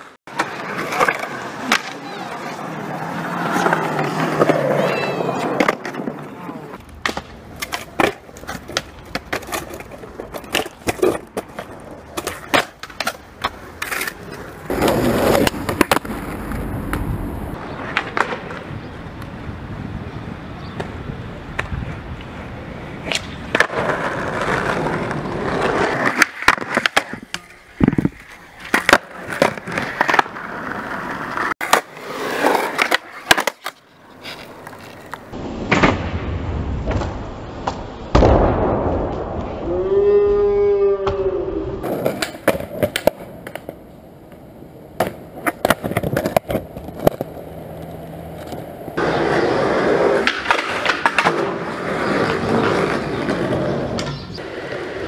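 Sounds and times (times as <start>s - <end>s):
skateboard clacks: 0.0s - 19.4s, 23.0s - 36.0s, 41.8s - 55.0s
skateboard wheels rolling: 0.0s - 55.0s
board scraping on concrete ledge: 23.5s - 36.0s.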